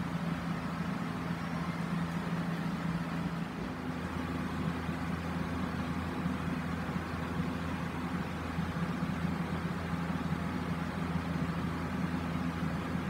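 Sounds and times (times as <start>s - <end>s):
exhaust fan running: 0.0s - 13.0s.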